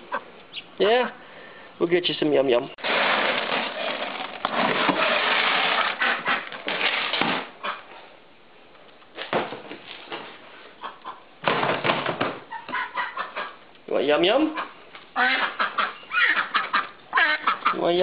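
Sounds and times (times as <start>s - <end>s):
dry feed rustling and scraping: 2.8s - 7.1s.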